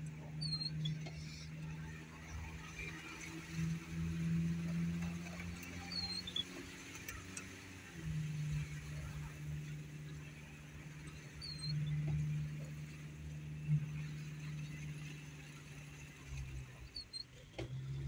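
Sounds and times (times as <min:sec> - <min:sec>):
vehicle engine hum: 0:00.0 - 0:18.0
brief high squeaks: 0:00.4 - 0:01.5, 0:05.6 - 0:06.5.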